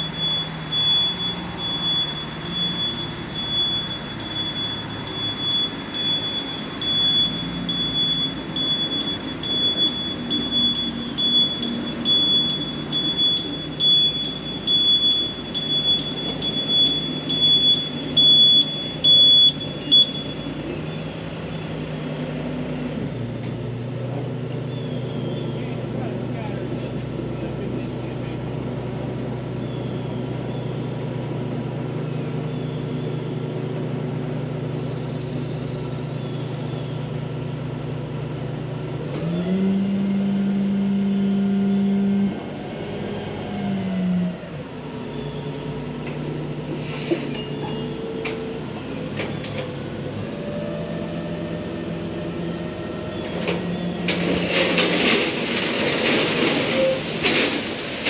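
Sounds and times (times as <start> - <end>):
diesel truck engine: 0.0 - 58.0.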